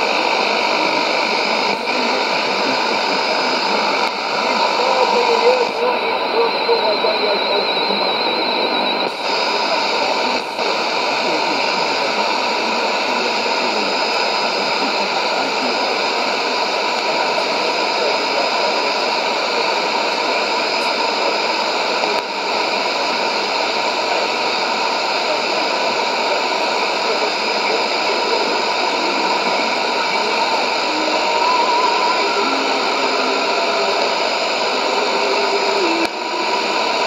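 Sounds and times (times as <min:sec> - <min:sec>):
radio static hiss: 0:00.0 - 0:37.0
faint steady whistle: 0:04.4 - 0:10.4, 0:30.0 - 0:37.0.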